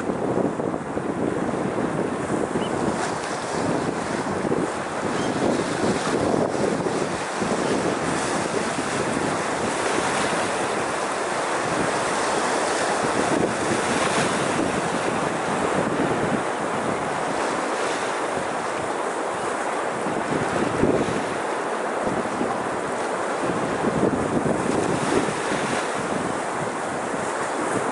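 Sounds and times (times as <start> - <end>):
waves washing over rocks: 0.0 - 27.9
wind noise on microphone: 0.0 - 27.9.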